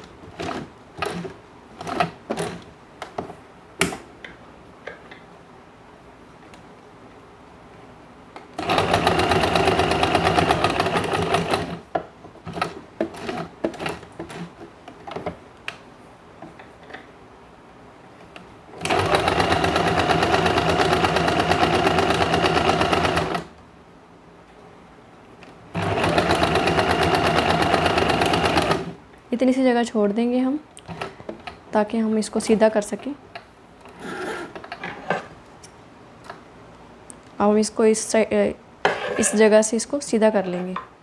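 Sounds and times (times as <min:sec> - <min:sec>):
sewing machine stitching: 0:00.4 - 0:02.6, 0:08.6 - 0:11.8, 0:12.5 - 0:14.5, 0:18.8 - 0:23.5, 0:25.8 - 0:29.0.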